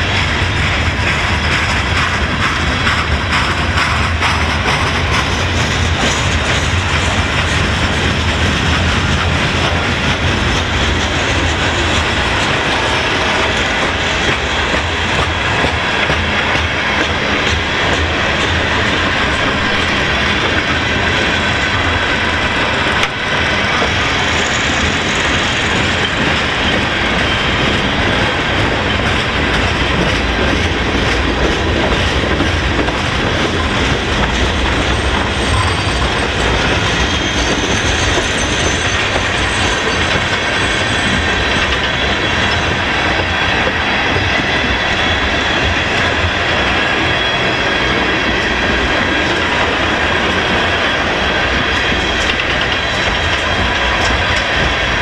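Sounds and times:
train wheels rolling on rails: 0:00.0 - 0:55.0.

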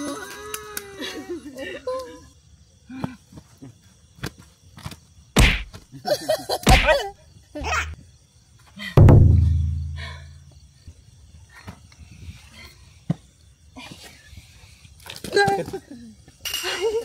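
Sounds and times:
heavy thump: 0:09.0 - 0:10.3
low boom: 0:09.0 - 0:10.3.

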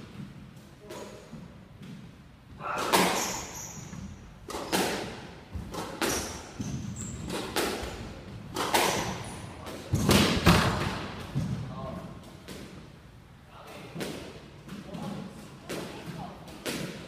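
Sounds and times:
squash ball hits echoing: 0:00.0 - 0:12.8, 0:13.8 - 0:17.0
sneakers squeaking on wooden floor: 0:02.6 - 0:04.4, 0:05.6 - 0:10.1.

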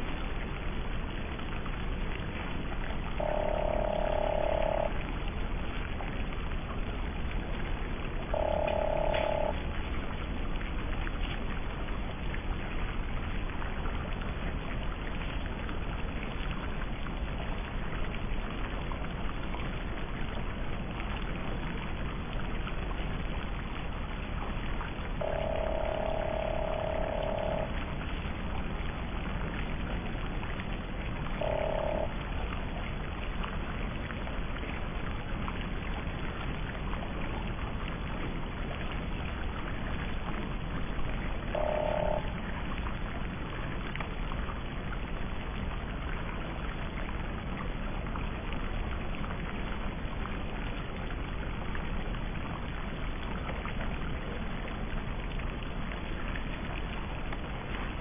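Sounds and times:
hiss-like background noise: 0:00.0 - 0:58.0
short mid-pitched beeps: 0:03.2 - 0:05.0, 0:08.4 - 0:09.6, 0:25.2 - 0:27.8, 0:31.4 - 0:32.2, 0:41.6 - 0:42.4.

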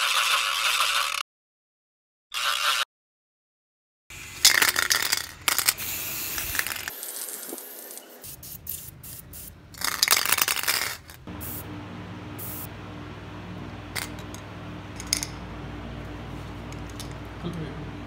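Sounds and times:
spray can ball rattling: 0:04.4 - 0:11.6, 0:15.0 - 0:15.4
steady low hum: 0:11.2 - 0:18.0.

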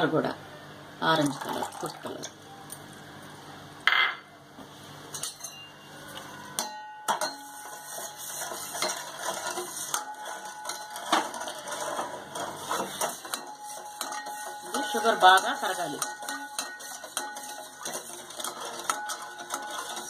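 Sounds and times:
spoon scraping steel pot: 0:06.6 - 0:20.0.

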